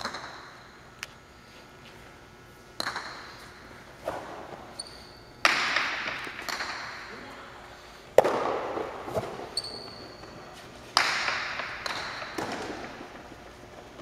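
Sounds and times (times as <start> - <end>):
ball cracking against walls: 2.8 - 3.4, 5.4 - 7.1, 8.1 - 10.0, 10.9 - 13.3.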